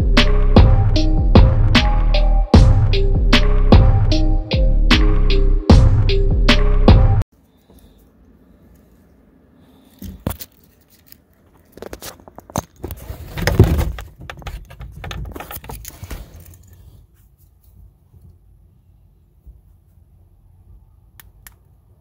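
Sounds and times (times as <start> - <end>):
scraping and rattling handling noise: 10.0 - 16.9.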